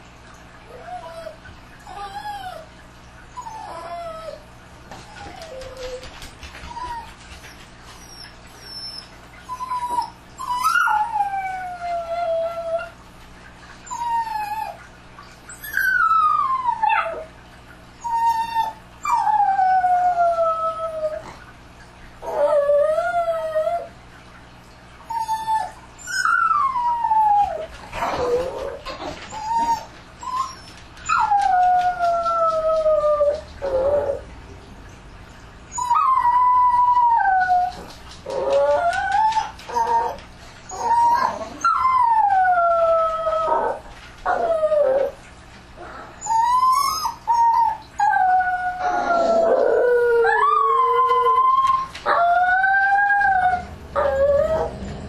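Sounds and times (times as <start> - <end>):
dogs howling: 22.2 - 23.9, 25.1 - 34.4, 35.7 - 45.2, 45.8 - 55.0.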